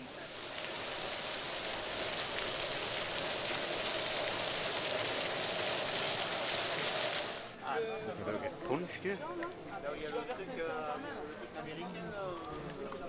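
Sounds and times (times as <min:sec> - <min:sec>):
fountain jets splashing: 0:00.0 - 0:07.6.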